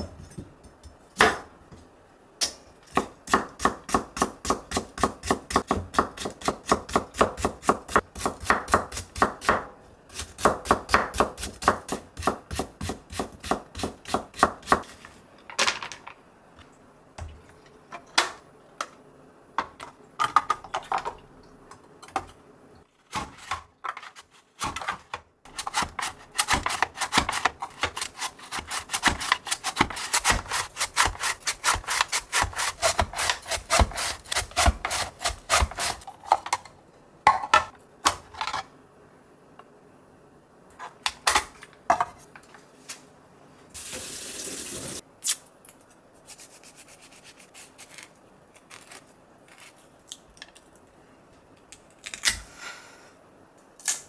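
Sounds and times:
slicer scraping carrot: 25.5s - 36.1s.

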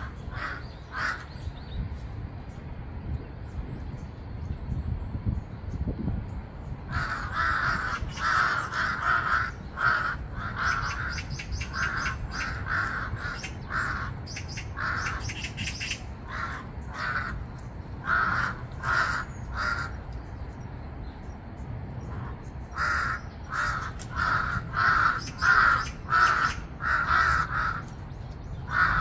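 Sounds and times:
crows cawing: 0.0s - 1.3s, 6.9s - 20.1s, 22.1s - 28.0s, 28.7s - 29.0s.

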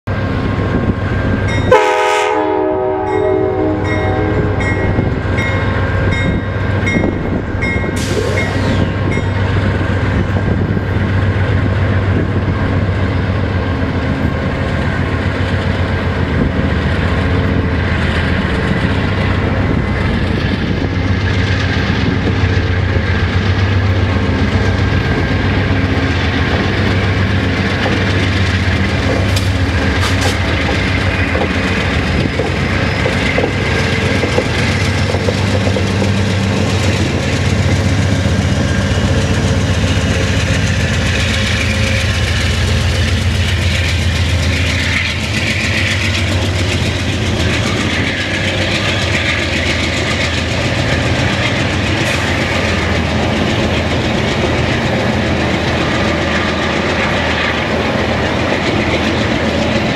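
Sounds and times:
diesel locomotive engine running: 0.1s - 59.9s
train wheels rumbling on rails: 0.1s - 59.9s
train horn: 1.7s - 5.1s.

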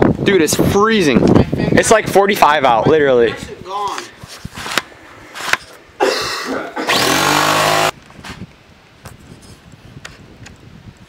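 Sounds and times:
dirt bike engine revving: 6.9s - 8.0s.

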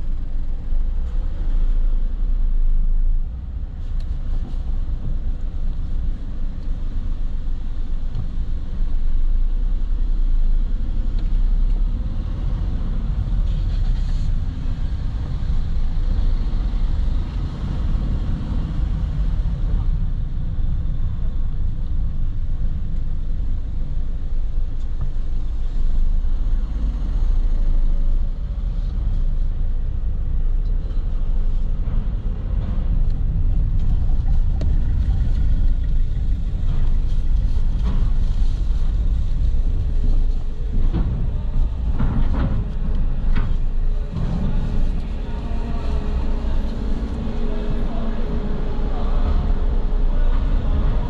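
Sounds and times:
car engine and road rumble: 0.0s - 51.0s
knocks and clatters: 31.5s - 47.2s.

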